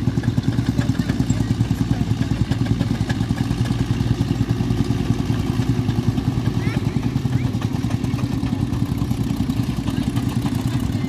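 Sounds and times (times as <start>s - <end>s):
tractor engine running: 0.0s - 11.0s.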